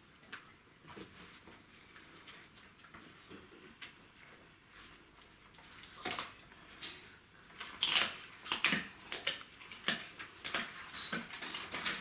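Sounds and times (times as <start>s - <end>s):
puppy chewing noisily: 7.7s - 12.0s.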